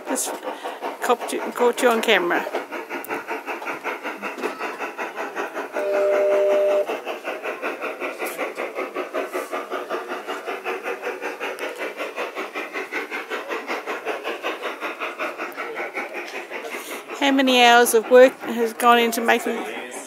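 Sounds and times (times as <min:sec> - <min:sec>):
model steam locomotive chuffing: 0:00.0 - 0:20.0
steam whistle blast: 0:05.8 - 0:06.9.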